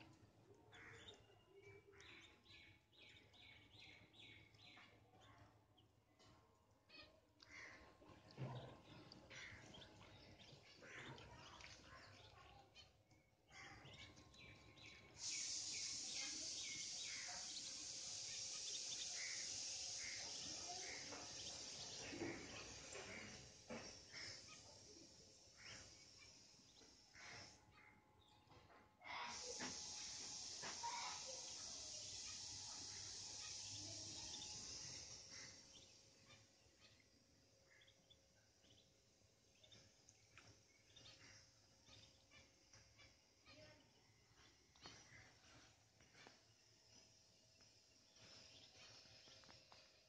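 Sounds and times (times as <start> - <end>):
ducklings peeping: 0.8 - 1.2, 6.9 - 13.1, 13.7 - 24.7, 29.3 - 37.1, 39.5 - 43.2
steady high hiss: 13.8 - 27.6, 29.0 - 37.8.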